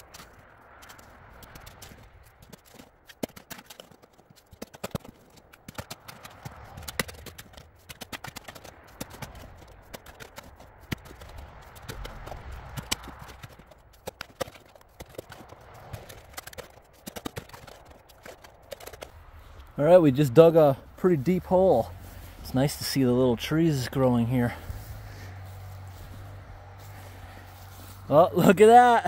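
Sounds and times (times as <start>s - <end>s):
shovel digging in soil: 0.0s - 19.7s.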